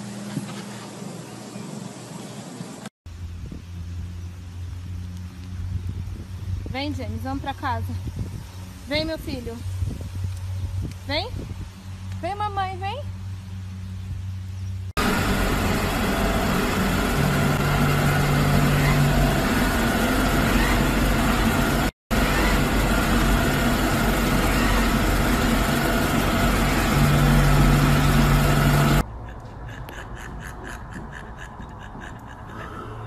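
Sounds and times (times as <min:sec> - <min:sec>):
low hum: 0:13.0 - 0:29.4
robot vacuum cleaner running: 0:15.0 - 0:29.0.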